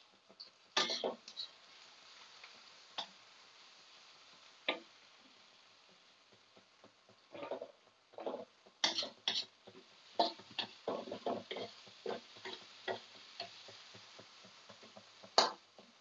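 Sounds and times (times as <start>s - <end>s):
faint frying sizzle: 0.0s - 16.0s
metal spatula scraping a wok: 7.3s - 15.9s.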